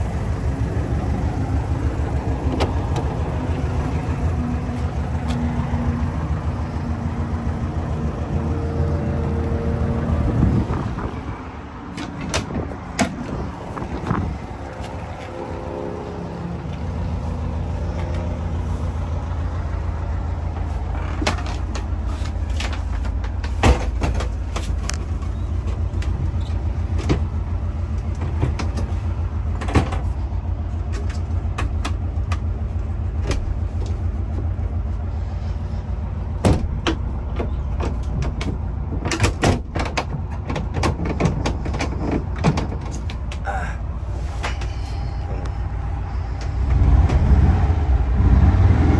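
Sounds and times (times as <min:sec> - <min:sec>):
van engine low rumble: 0:00.0 - 0:48.9.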